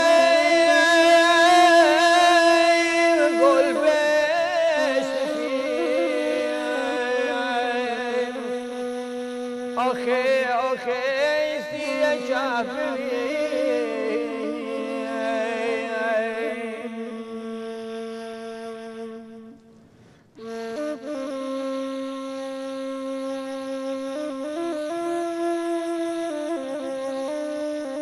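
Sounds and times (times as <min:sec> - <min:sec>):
reed flute playing: 0:00.0 - 0:09.8, 0:20.4 - 0:28.0
man singing: 0:00.0 - 0:18.2.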